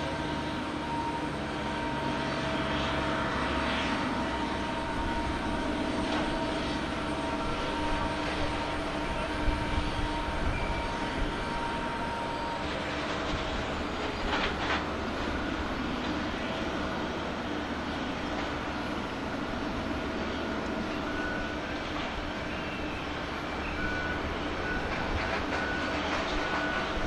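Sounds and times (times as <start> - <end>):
jet engines whining: 0.0 - 27.0.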